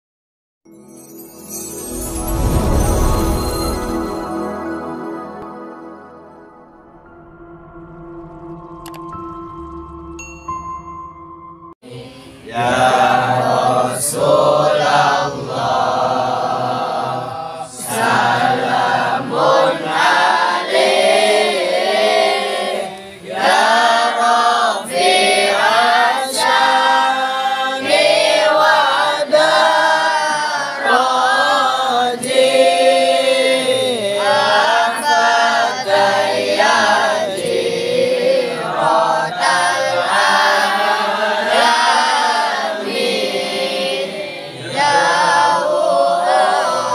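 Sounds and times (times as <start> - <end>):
group chanting in unison: 11.8 - 46.9.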